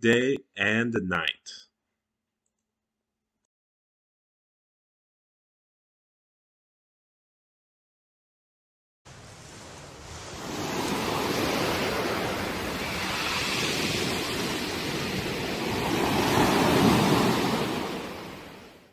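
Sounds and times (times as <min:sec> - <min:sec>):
waves breaking on a beach: 0:09.1 - 0:18.9.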